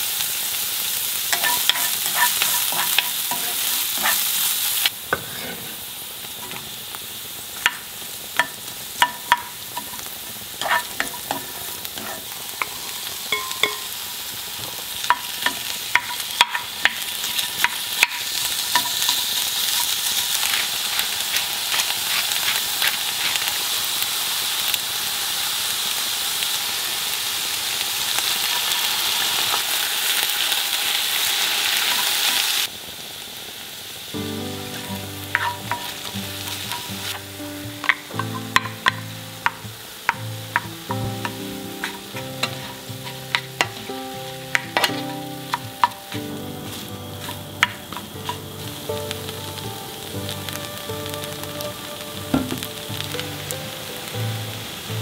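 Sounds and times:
food sizzling in a skillet: 0.0 - 55.0
wooden spoon scraping a pan: 1.3 - 5.9, 10.6 - 13.8, 15.1 - 23.6, 34.8 - 37.2, 40.5 - 43.9.

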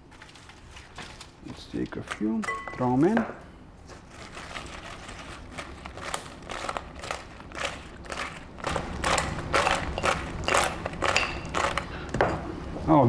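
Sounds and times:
chicken wings tossed in a bowl: 4.1 - 11.9.

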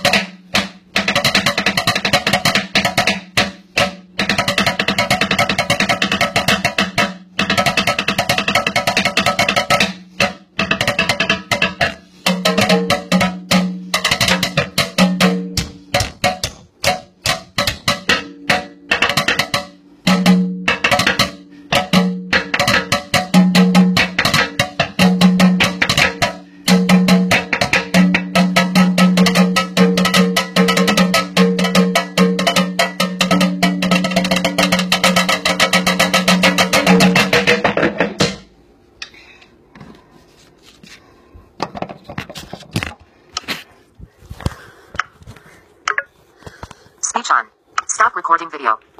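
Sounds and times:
rhythmic strikes on kitchen sink: 0.0 - 38.6.

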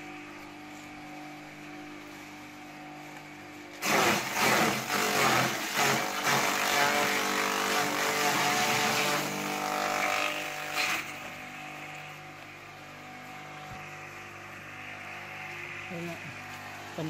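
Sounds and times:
grass chopper shredding grass: 3.7 - 17.0.

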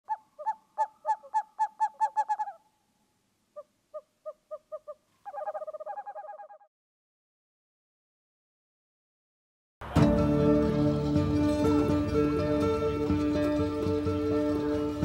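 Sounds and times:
owl calls: 0.0 - 2.7, 3.5 - 6.7.

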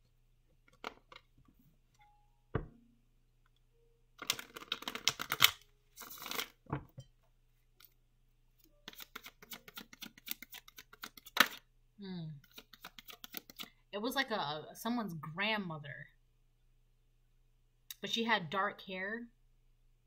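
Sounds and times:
cards being shuffled: 4.2 - 6.7, 8.7 - 11.6, 12.4 - 13.8.

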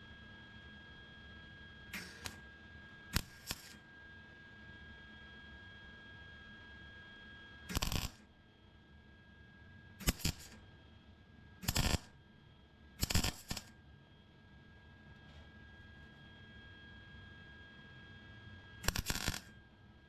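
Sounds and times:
welder arc crackle: 2.0 - 2.4, 3.2 - 3.8, 7.7 - 8.2, 10.0 - 10.6, 11.6 - 12.1, 13.0 - 13.7, 18.8 - 19.5.

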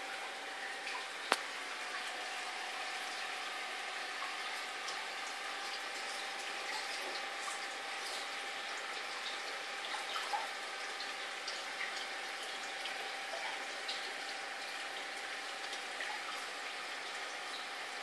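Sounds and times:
thin steady hum: 0.0 - 18.0
trickling bubbling water: 0.0 - 18.0
water drips and pops: 0.8 - 2.4.

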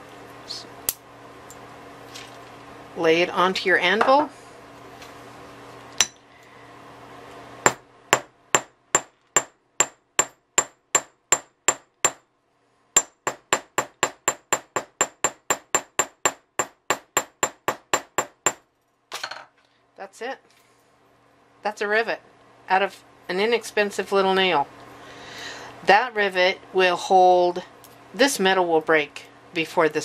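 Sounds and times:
hammer striking metal anvil: 6.0 - 6.2.

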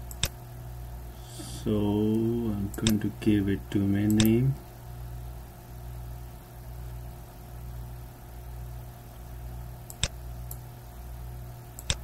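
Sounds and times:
computer mouse click: 0.0 - 0.4, 2.1 - 3.0, 4.1 - 4.4, 9.9 - 10.6, 11.8 - 12.0
low electrical hum: 0.0 - 12.0.

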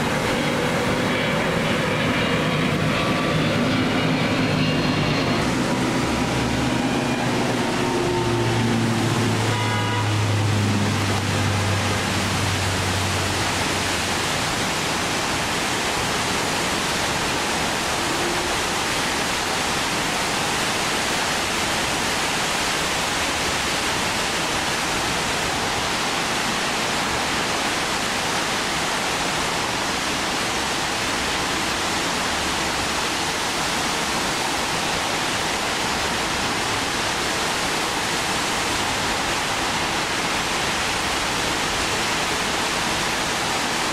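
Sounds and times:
low hum: 0.0 - 14.1
wind and rain rushing: 0.0 - 43.9.

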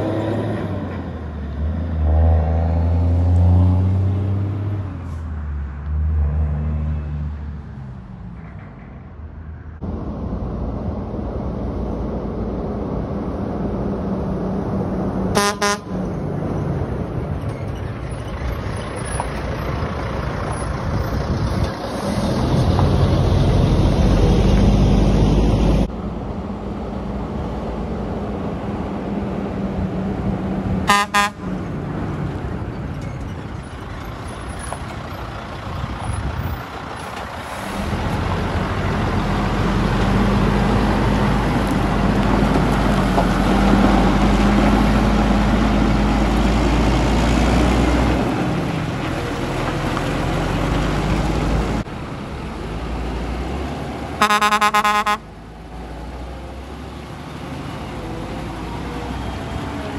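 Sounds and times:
diesel truck engine accelerating: 0.0 - 59.9
short horn toot: 15.4 - 16.0, 30.9 - 31.4, 54.2 - 55.2.

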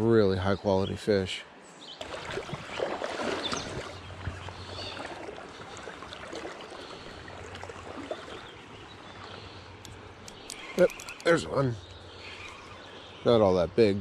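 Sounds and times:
water running over riffle: 2.0 - 9.4
fishing reel clicking: 9.8 - 11.4.

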